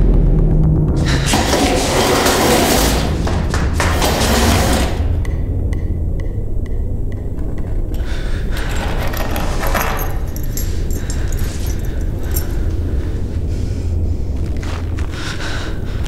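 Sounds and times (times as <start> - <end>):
low rumble: 0.0 - 16.0
keys jangling: 8.0 - 12.9.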